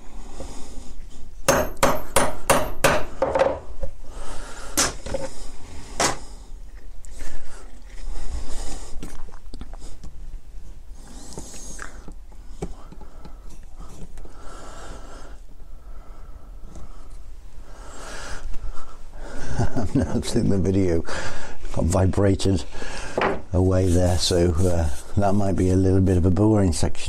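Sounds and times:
hammer tapping steel punch: 1.5s - 3.6s.

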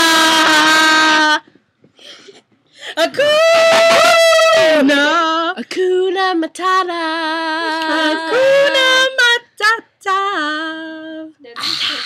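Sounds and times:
woman singing unaccompanied: 3.0s - 11.6s.

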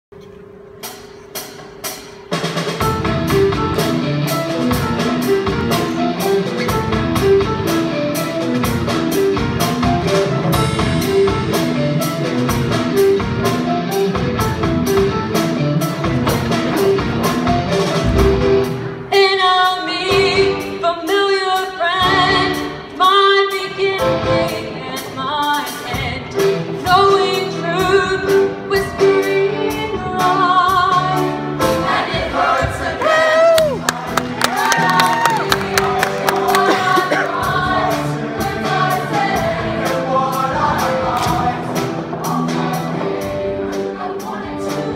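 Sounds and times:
instrumental music with driving beat: 0.5s - 19.3s
choir singing: 31.6s - 44.9s.

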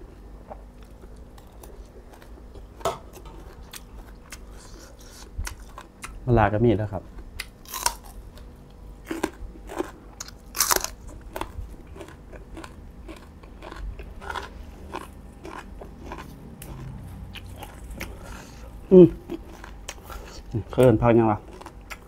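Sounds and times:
crunchy vegetable being chewed: 0.4s - 6.2s, 7.1s - 22.0s.

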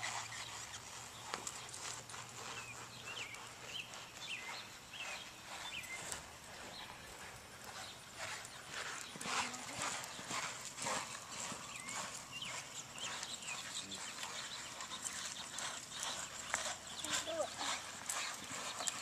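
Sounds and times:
horse hoofbeats on sand: 0.0s - 19.0s.

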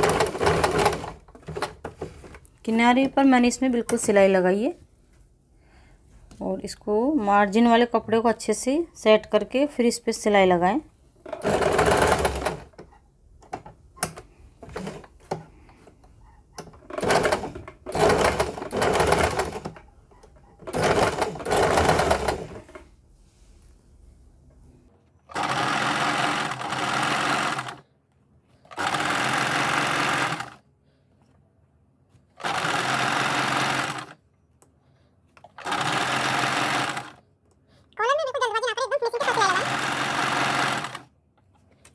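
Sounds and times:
sewing machine stitching: 0.0s - 2.4s, 11.2s - 22.8s, 25.3s - 27.8s, 28.6s - 30.6s, 32.3s - 34.2s, 35.4s - 37.2s, 39.2s - 41.1s.

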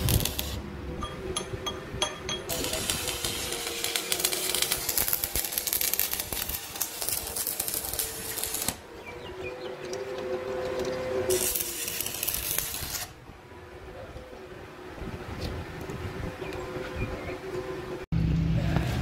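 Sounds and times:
welding arc crackling: 0.0s - 0.6s, 2.5s - 8.9s, 11.2s - 13.2s
arc welder hum: 0.0s - 0.8s, 2.5s - 13.2s.

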